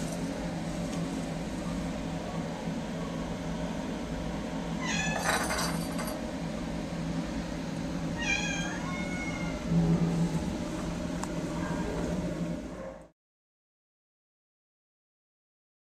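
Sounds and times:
steady low hum: 0.0s - 13.1s
cat meowing: 4.8s - 5.3s, 8.2s - 9.6s.

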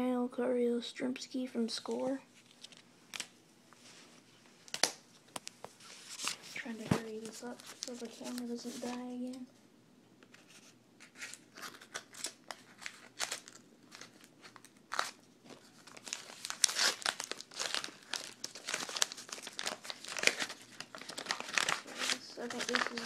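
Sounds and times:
plastic wrappers crinkling: 2.3s - 3.3s, 4.6s - 9.4s, 11.0s - 23.0s.

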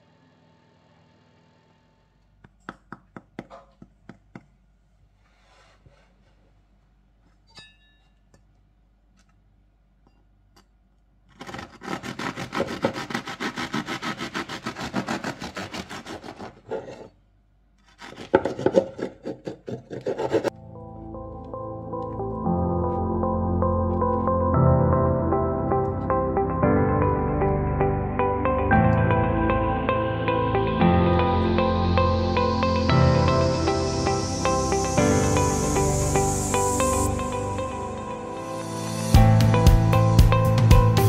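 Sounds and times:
knife sawing through crusty bread: 11.3s - 17.1s, 17.8s - 20.5s.

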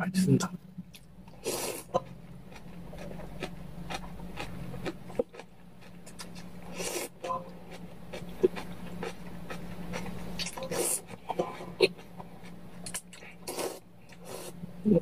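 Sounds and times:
low hum: 0.0s - 15.0s
man chewing with mouth clicks: 0.9s - 14.5s
slurping noodles: 1.4s - 1.9s, 13.4s - 14.6s.

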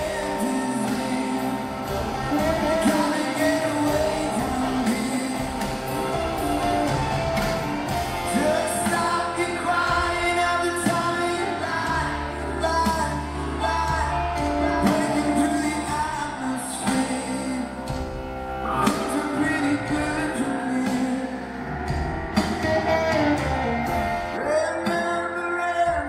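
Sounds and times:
man singing: 0.0s - 6.9s, 8.2s - 18.0s, 18.6s - 21.8s, 22.4s - 26.0s
live pop-rock band: 0.0s - 26.0s.

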